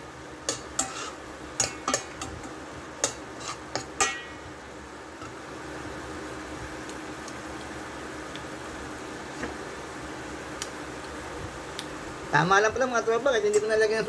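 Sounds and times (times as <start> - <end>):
sauce simmering hiss: 0.0 - 14.0
metal spoon clinking on pan: 0.5 - 4.4.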